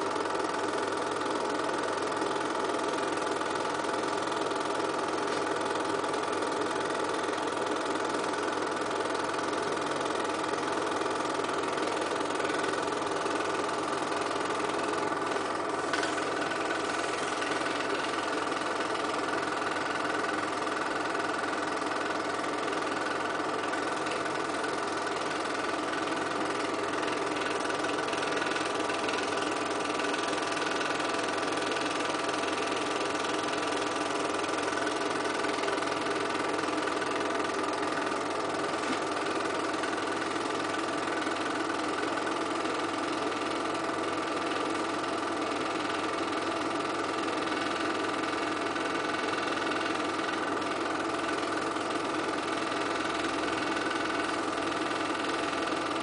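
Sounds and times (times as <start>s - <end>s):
film projector running: 0.0s - 56.0s.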